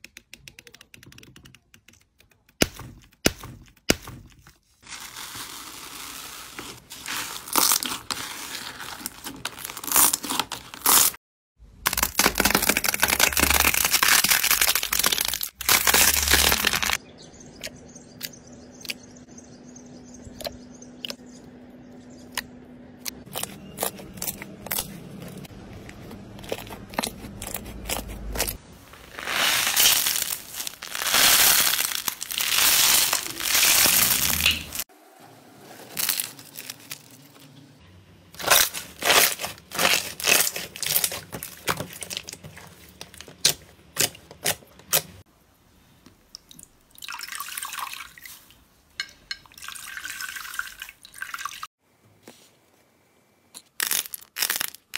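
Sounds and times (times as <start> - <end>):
wet squishing of slime: 23.2 - 34.9, 38.4 - 45.2.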